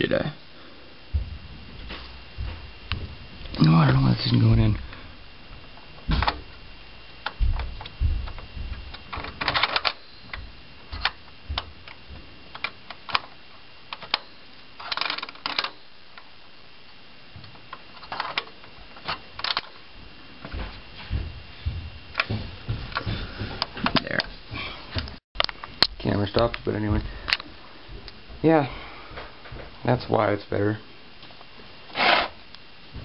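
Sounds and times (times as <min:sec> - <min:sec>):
metal and plastic parts rattling: 0:07.2 - 0:15.8, 0:17.9 - 0:19.8.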